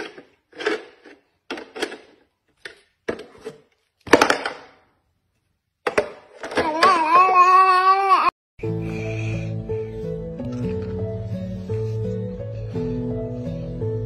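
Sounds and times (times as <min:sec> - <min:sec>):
plastic toy pieces clattering: 0:00.0 - 0:04.8, 0:05.8 - 0:07.0.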